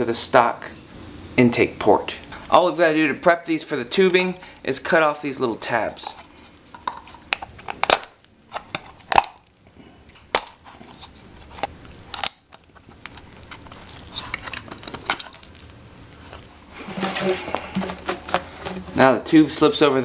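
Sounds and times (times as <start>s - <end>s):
knife snapping through plastic: 6.8s - 9.5s, 11.6s - 15.7s
blade scraping plastic: 16.2s - 19.0s.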